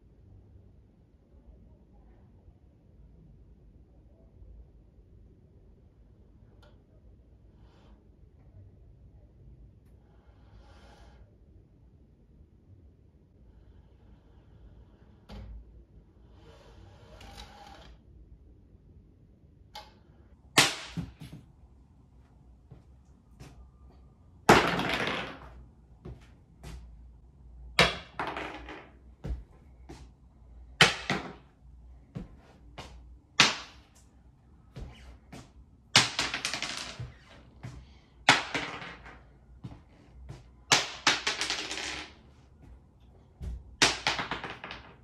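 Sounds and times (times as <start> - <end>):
pebbles clattering on wooden floor: 24.5 - 25.5, 27.8 - 29.4, 30.8 - 31.5, 36.0 - 37.4, 38.3 - 39.3, 40.7 - 42.2, 43.4 - 45.0.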